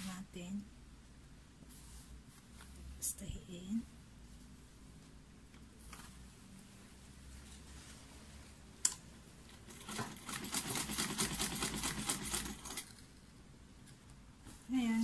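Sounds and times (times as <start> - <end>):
sewing machine stitching: 9.7 - 12.9.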